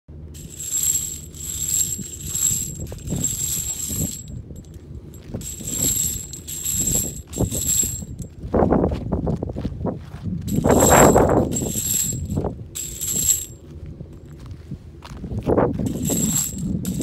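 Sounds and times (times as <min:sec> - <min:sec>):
brass cases jingling: 0:00.4 - 0:08.3, 0:10.5 - 0:13.6, 0:15.8 - 0:17.0
cage rolling over gravel: 0:00.4 - 0:08.7, 0:10.5 - 0:13.6, 0:15.4 - 0:17.0.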